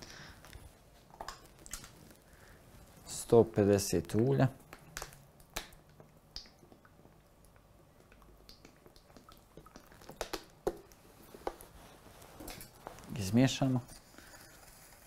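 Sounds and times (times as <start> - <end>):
wet clicks and drips: 1.1 - 2.2, 4.0 - 11.6.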